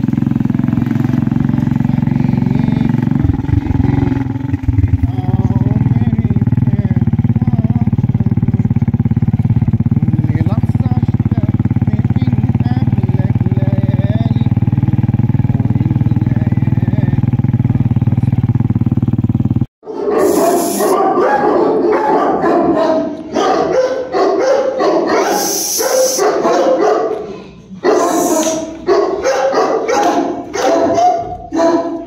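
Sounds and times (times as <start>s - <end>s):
vehicle engine running: 0.0s - 19.7s, 27.8s - 32.0s
large dogs barking: 19.8s - 32.0s.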